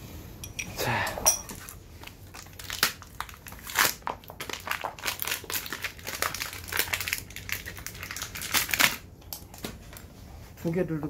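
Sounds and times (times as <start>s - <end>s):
cardboard and paper packaging crinkling: 1.6s - 10.2s.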